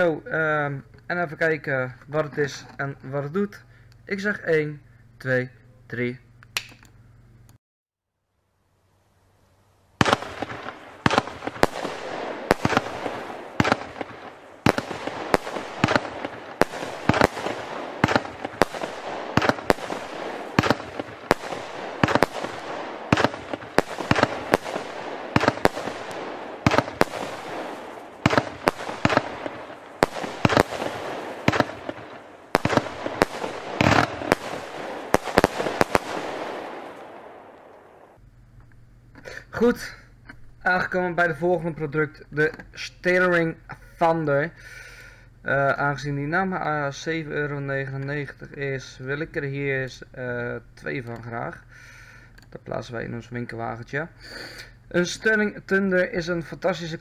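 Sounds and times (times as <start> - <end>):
fireworks bangs: 10.0 - 38.2
fireworks rushing noise: 10.0 - 38.2.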